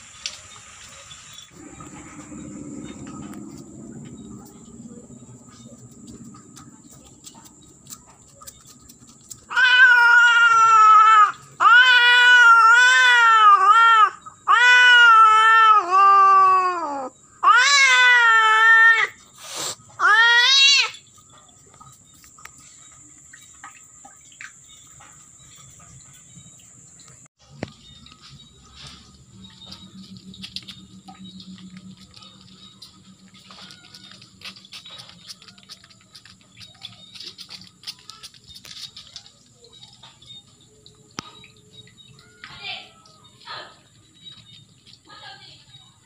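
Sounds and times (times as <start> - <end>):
cat yowling: 9.5 - 19.2, 20.0 - 21.0.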